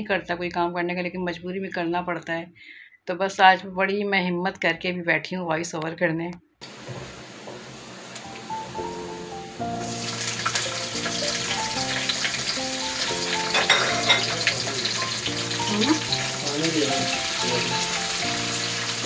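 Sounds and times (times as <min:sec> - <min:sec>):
vegetables sizzling in hot oil: 0:06.6 - 0:19.0
background music: 0:08.2 - 0:19.0.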